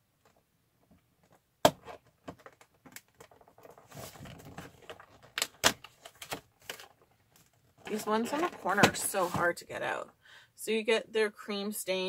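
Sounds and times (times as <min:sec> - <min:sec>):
cardboard scraping: 0:03.3 - 0:05.3, 0:07.8 - 0:09.6.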